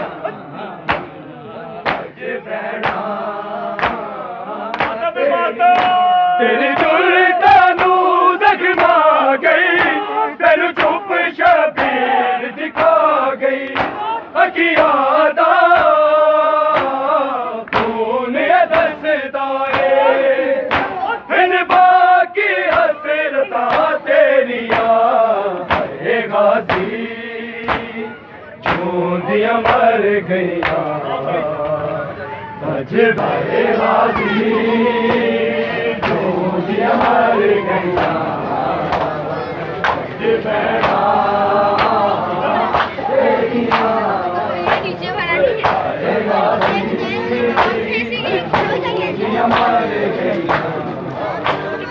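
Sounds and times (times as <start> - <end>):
men chanting a lament: 0.0 - 51.9
hands slapping chests: 0.8 - 1.2, 1.8 - 2.2, 2.8 - 3.1, 3.8 - 5.0, 7.7 - 8.0, 13.6 - 14.0, 16.7 - 17.0, 17.7 - 18.0, 20.7 - 21.0, 24.7 - 26.0, 27.6 - 27.9, 28.6 - 28.9, 30.6 - 31.0, 36.0 - 36.3, 38.8 - 39.2, 39.8 - 42.1, 42.7 - 43.0, 43.7 - 44.0, 49.5 - 49.8, 50.4 - 50.8.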